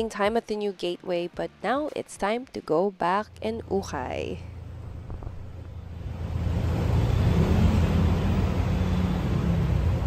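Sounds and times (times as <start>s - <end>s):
vehicle engine rumble: 3.2s - 10.0s.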